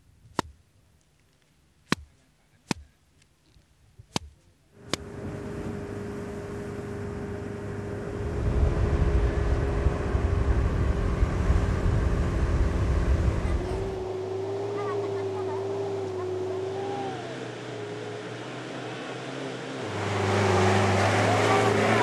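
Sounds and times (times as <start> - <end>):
sharp knocks: 1.9 - 2.1, 4.1 - 5.0
motor running with low rumble: 4.8 - 17.4.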